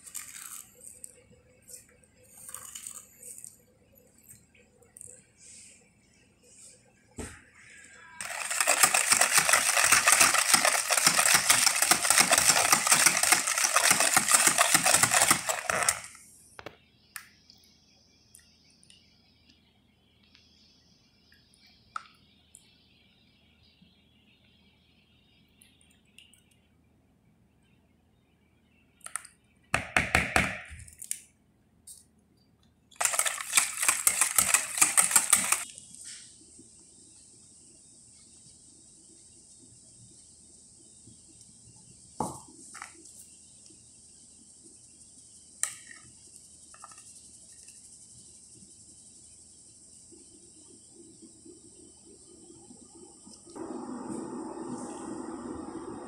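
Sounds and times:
whisk clattering in plastic bowl: 0:08.2 - 0:16.1, 0:33.0 - 0:35.6
quick run of clicks: 0:08.2 - 0:16.2, 0:33.0 - 0:35.7.

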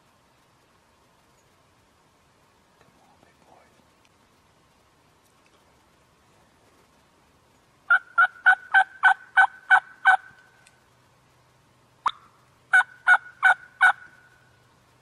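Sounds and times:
wild turkey yelping: 0:07.9 - 0:10.6, 0:12.0 - 0:14.6.

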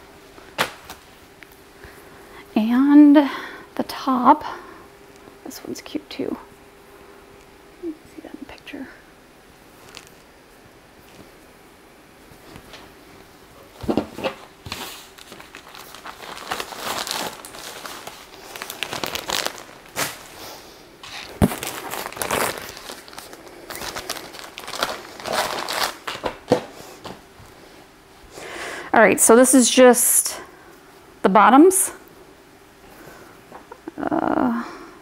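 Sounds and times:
rustling and crackling of swimsuits: 0:09.6 - 0:28.0.

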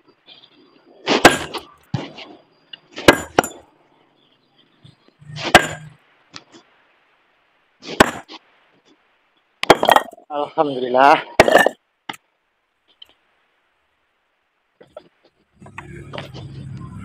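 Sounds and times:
sledgehammer striking rock: 0:01.1 - 0:02.2, 0:03.0 - 0:03.6, 0:05.4 - 0:05.9, 0:07.9 - 0:08.3.

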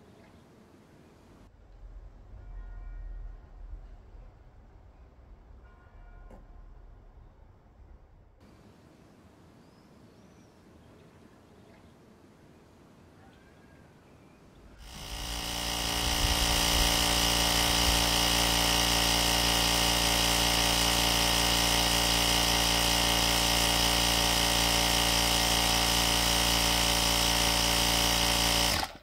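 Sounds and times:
air compressor running: 0:14.8 - 0:29.0.

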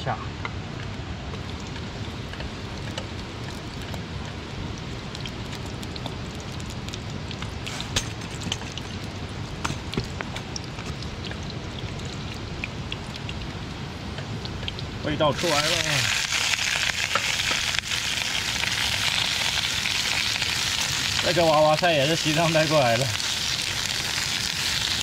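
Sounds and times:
hot oil sizzling and popping: 0:00.4 - 0:25.0.

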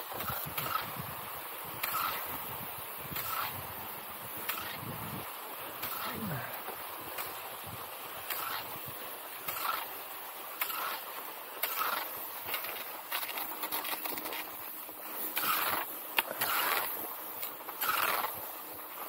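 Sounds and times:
skis swishing on snow: 0:00.0 - 0:19.0
ski pole clicks: 0:01.8 - 0:02.2.

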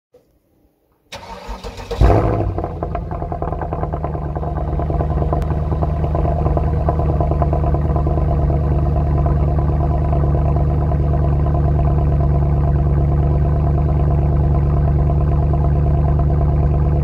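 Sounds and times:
engine starter cranking: 0:01.1 - 0:02.7
car engine idling: 0:01.2 - 0:17.0
car engine revving: 0:01.2 - 0:17.0.

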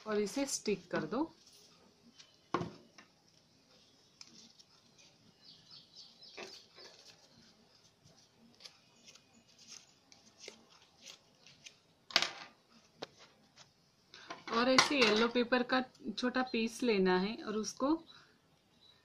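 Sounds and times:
paper rustling and crinkling: 0:04.0 - 0:05.4, 0:06.3 - 0:11.8.

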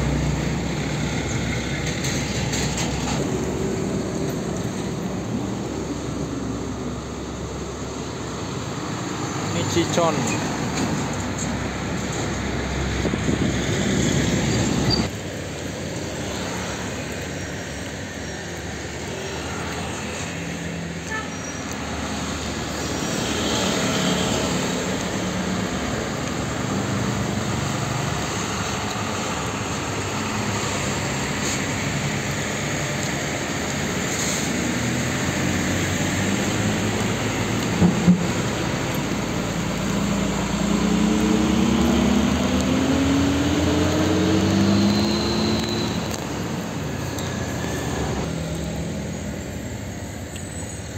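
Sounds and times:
diesel truck engines: 0:00.0 - 0:50.9
motorcycles passing: 0:21.7 - 0:50.9.

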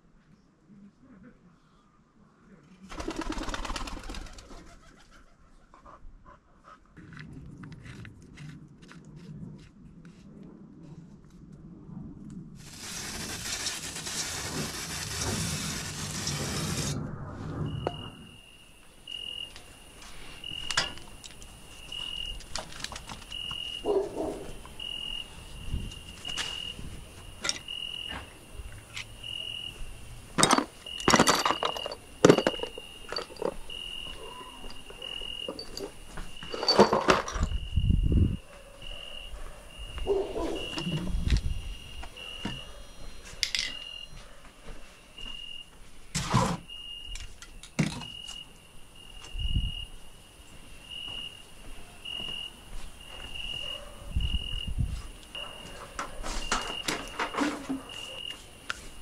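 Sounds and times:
hiss: 0:12.6 - 0:17.0
tools clattering: 0:30.4 - 0:33.8, 0:34.6 - 0:37.5, 0:43.4 - 0:43.9.

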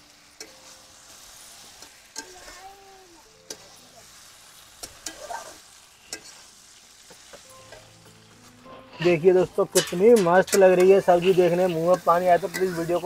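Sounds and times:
light sizzle of frying: 0:00.0 - 0:13.0
spatula scraping metal pan: 0:04.8 - 0:06.5, 0:08.7 - 0:13.0.

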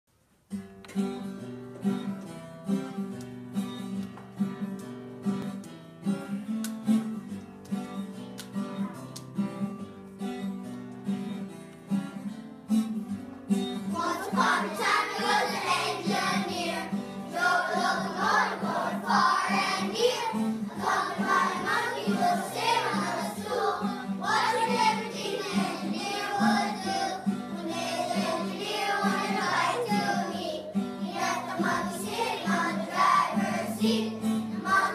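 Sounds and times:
guitar plucked and strummed: 0:00.5 - 0:34.9
young children singing: 0:13.9 - 0:34.9.

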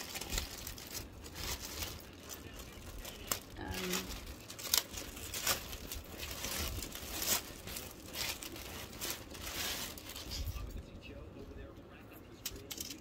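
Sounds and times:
packaging crinkling: 0:00.0 - 0:10.7.

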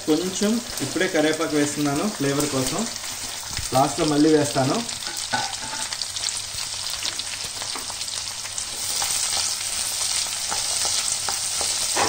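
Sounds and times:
onions sizzling in hot oil: 0:00.0 - 0:12.0
oil crackles: 0:00.1 - 0:04.9.

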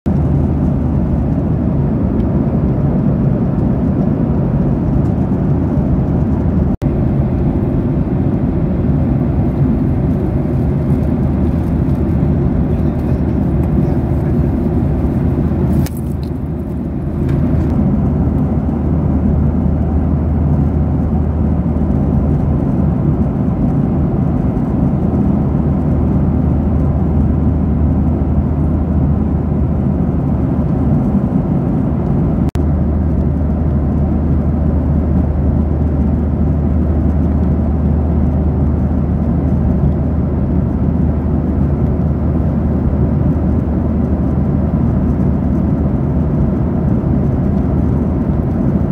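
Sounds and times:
jet engine cabin drone: 0:00.1 - 0:48.9.

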